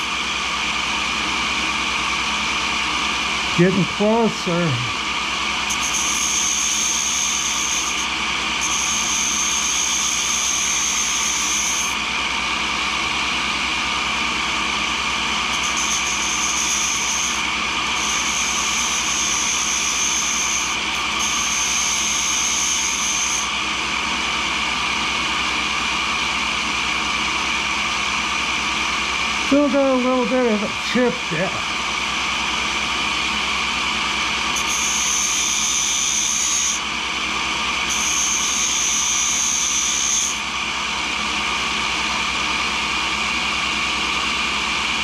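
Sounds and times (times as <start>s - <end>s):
grinder running: 0.0s - 45.0s
high grinding hiss: 37.9s - 40.4s.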